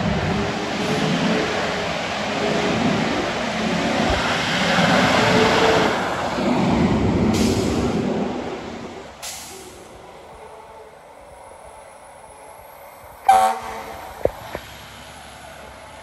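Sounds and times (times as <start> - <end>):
air brake hisses: 7.4 - 8.0, 9.2 - 9.9
fire engine with siren: 13.2 - 14.0.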